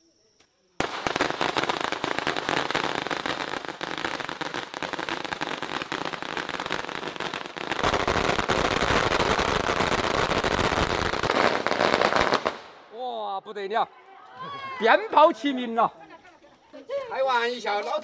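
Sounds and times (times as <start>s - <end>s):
firecrackers crackling: 0.8s - 13.0s.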